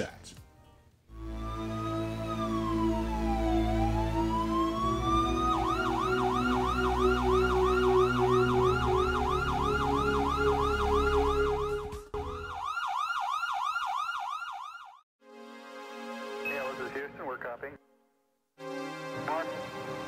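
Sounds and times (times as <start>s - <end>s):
background music: 0.0s - 12.8s, 15.2s - 20.0s
ambulance siren wailing and yelping: 1.4s - 15.0s.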